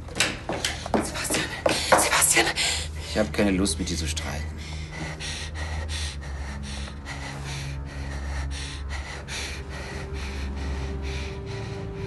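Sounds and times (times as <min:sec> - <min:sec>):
low steady drone: 0:02.6 - 0:12.0
woman panicked breathing: 0:04.6 - 0:12.0.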